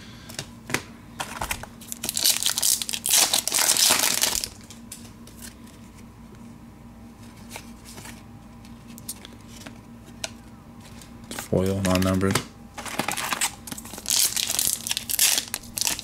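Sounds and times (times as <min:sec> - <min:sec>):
card pack wrapper tearing and crinkling: 0:01.3 - 0:04.8, 0:11.6 - 0:16.0.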